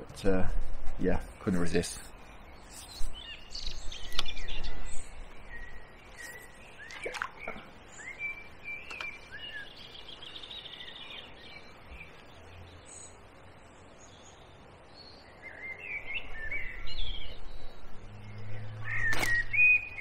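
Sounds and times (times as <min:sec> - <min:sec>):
birds chirping and whistling: 0:00.5 - 0:13.2, 0:13.8 - 0:20.0
bird trill: 0:02.6 - 0:12.1, 0:15.0 - 0:20.0.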